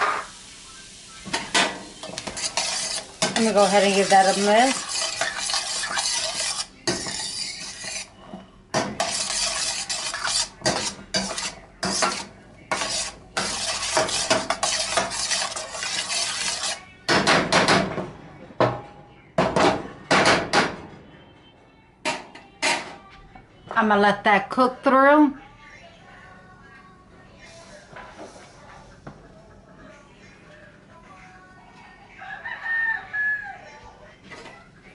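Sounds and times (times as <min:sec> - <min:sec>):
vegetables sizzling: 0:00.0 - 0:08.1
utensil scraping metal pan: 0:01.5 - 0:08.2, 0:08.8 - 0:16.8.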